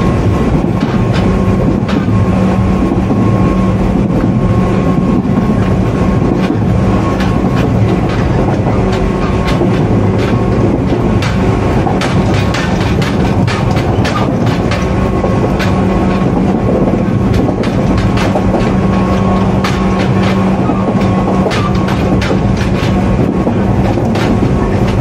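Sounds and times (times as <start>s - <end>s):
electric train motor hum: 0.0s - 25.0s
wheels clicking over rail joints: 0.0s - 25.0s.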